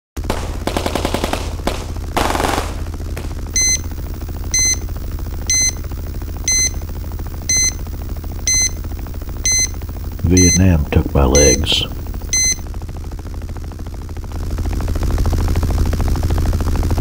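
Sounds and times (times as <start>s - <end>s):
burst of noise: 0.2s - 4.4s
machine-gun fire: 0.2s - 4.4s
low rumble: 0.2s - 12.8s
heart monitor beeping: 3.2s - 12.7s.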